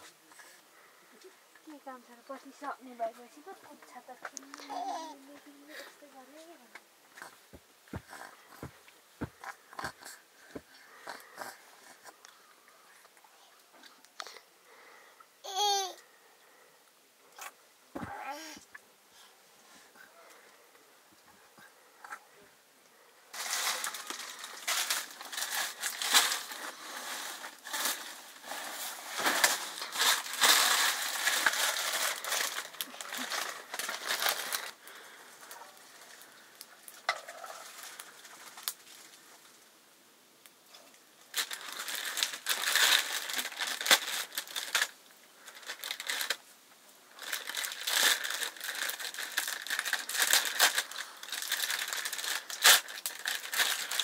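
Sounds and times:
crinkling and crunching by hand: 7.1s - 13.2s, 23.3s - 39.6s, 40.4s - 46.5s, 47.1s - 54.0s.

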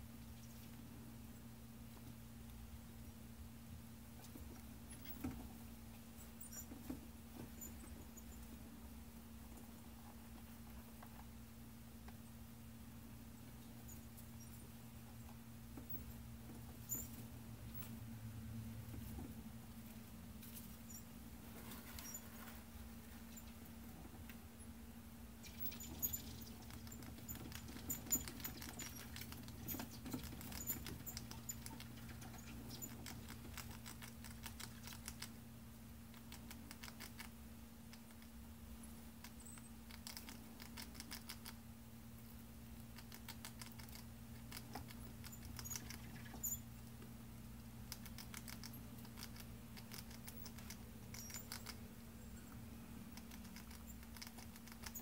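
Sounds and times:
steady low hum: 0.0s - 55.0s
small animals scrabbling: 25.4s - 35.4s.

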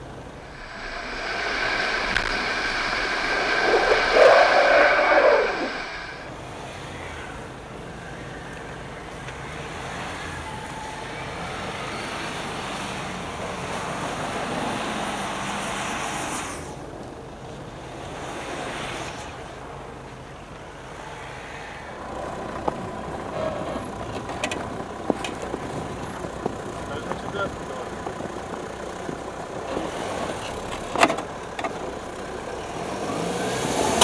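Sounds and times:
off-road engines under load: 21.9s - 34.0s.

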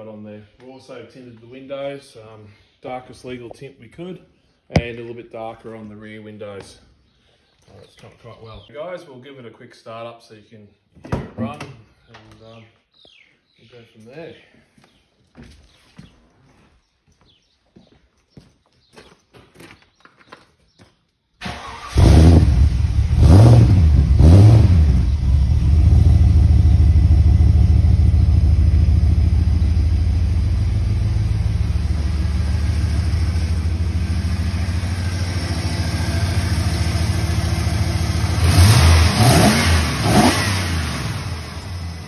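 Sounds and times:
car engine starting and revving: 21.4s - 42.0s
car engine idling: 25.0s - 39.3s.

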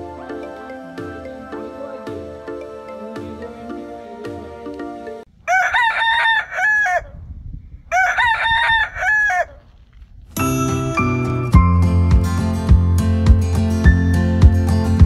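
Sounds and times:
background music: 0.0s - 5.3s, 10.4s - 15.0s
rooster crowing: 5.4s - 7.2s, 7.9s - 9.6s.

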